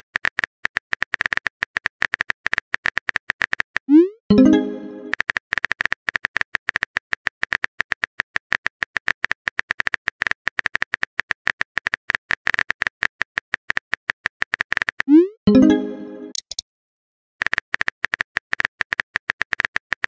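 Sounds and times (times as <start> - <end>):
phone keyboard typing clicks: 16.3 - 16.6.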